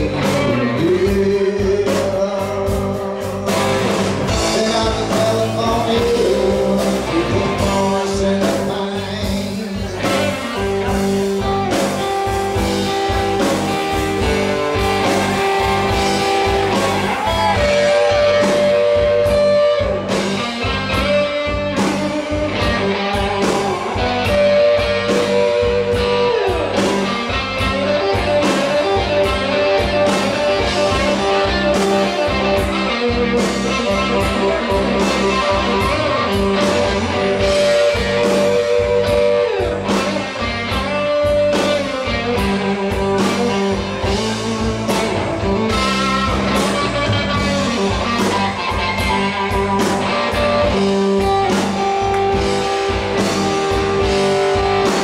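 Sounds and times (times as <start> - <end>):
bass guitar: 0.0 - 55.0
drum kit steady beat: 0.0 - 55.0
electric guitar bending notes: 0.0 - 55.0.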